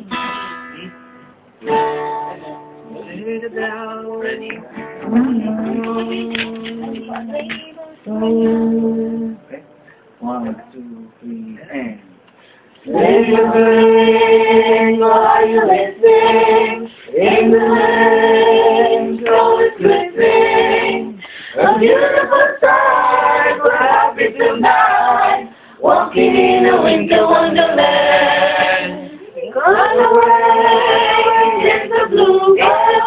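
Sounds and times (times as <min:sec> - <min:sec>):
mixed-voice choir singing: 0:04.2 - 0:07.4, 0:08.0 - 0:09.4, 0:12.8 - 0:33.0.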